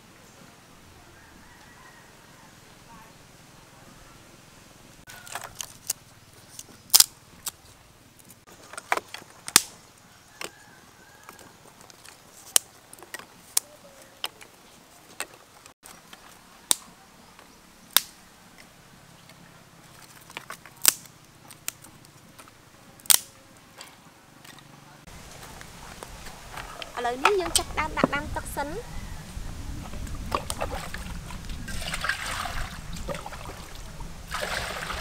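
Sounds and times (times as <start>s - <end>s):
dry twigs snapping: 5.1s - 7.6s, 8.2s - 9.8s, 11.3s - 14.5s, 15.1s - 18.2s, 19.9s - 23.9s.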